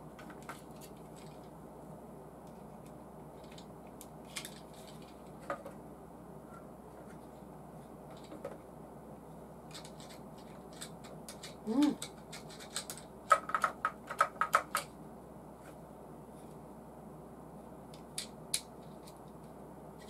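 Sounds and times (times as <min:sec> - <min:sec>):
person humming: 0:11.6 - 0:12.0.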